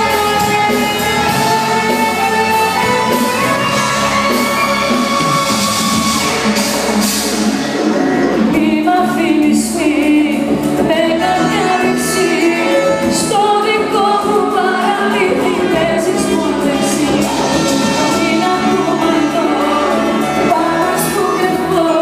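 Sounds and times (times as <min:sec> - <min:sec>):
live band playing: 0:00.0 - 0:22.0
woman singing ornamented phrases: 0:08.6 - 0:22.0.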